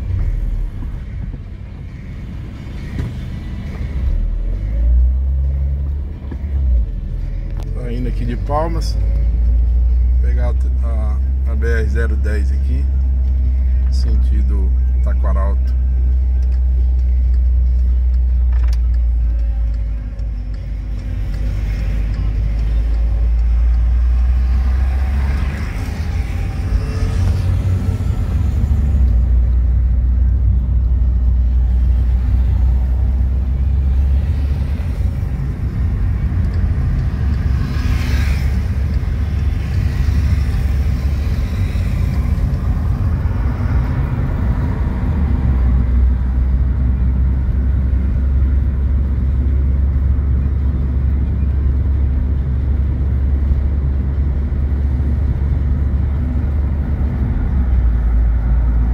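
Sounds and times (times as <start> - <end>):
car engine and tyre rumble: 0.0 - 58.9
vehicle swishing past: 37.1 - 43.0.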